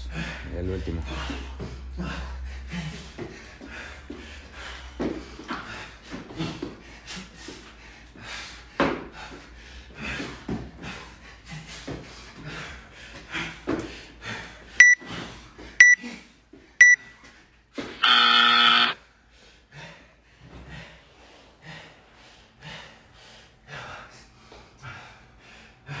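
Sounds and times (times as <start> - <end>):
person panting hard: 0.0 - 16.4, 19.0 - 26.0
timer beeps: 14.8 - 15.0, 15.8 - 16.0, 16.8 - 17.1.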